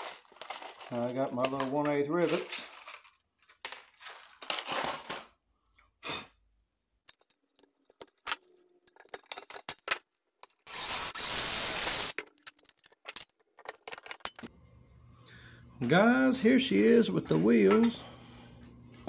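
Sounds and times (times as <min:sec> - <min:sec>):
rivets rattling in plastic box: 0:00.0 - 0:05.3, 0:12.1 - 0:14.4
cordless drill running: 0:10.7 - 0:12.2.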